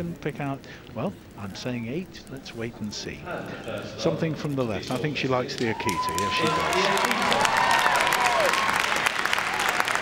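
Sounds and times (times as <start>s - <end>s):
audience applauding: 5.5s - 10.0s
crowd cheering: 5.5s - 10.0s.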